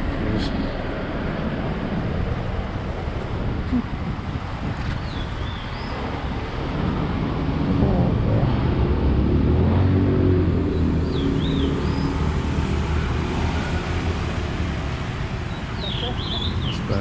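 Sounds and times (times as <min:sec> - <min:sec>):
steady traffic noise: 0:00.0 - 0:17.0
vehicle engine passing by: 0:06.6 - 0:17.0.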